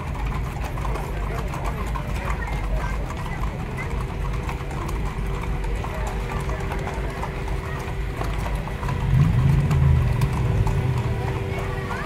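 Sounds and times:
horse hooves clip-clopping: 0:00.0 - 0:12.0
steady low rumble: 0:07.9 - 0:12.0
loud low sound: 0:09.0 - 0:11.6.

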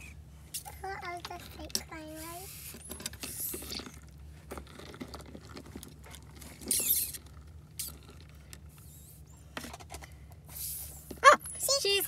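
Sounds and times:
plastic doll squeaking: 0:06.6 - 0:07.2.

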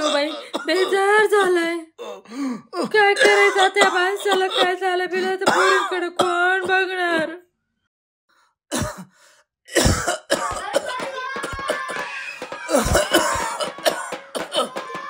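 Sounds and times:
person coughing: 0:00.0 - 0:01.2, 0:02.8 - 0:07.3, 0:08.7 - 0:09.1, 0:09.7 - 0:11.0, 0:12.7 - 0:14.9.

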